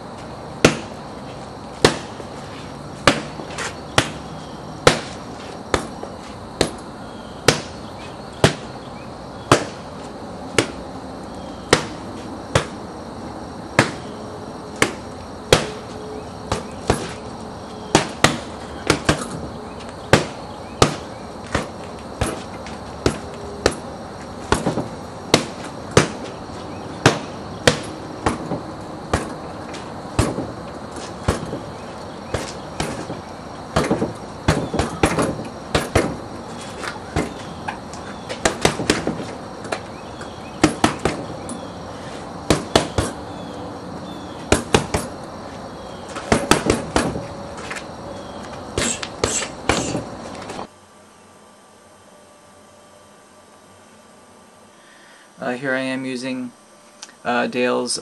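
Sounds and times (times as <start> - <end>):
hand strikes on bags: 0.6 - 1.0, 1.8 - 2.2, 3.0 - 6.8, 7.4 - 7.8, 8.4 - 8.7, 9.5 - 9.8, 11.7 - 12.8, 13.8 - 14.1, 14.8 - 17.3, 17.9 - 26.4, 27.0 - 41.5, 42.4 - 43.2, 44.4 - 45.2, 46.0 - 47.3, 48.8 - 50.7.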